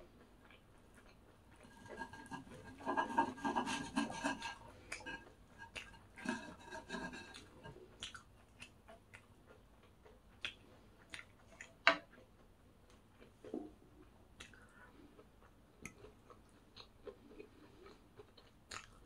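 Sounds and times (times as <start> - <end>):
fried cutlet crackling: 1.0 - 8.8.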